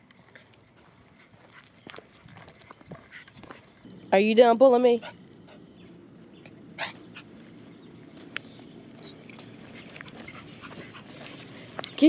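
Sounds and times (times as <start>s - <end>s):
footsteps on dirt trail: 0.0s - 4.0s, 7.3s - 12.0s.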